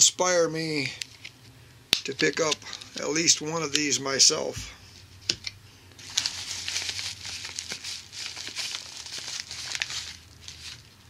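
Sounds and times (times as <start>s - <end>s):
bubble mailer crinkling: 5.9s - 11.0s.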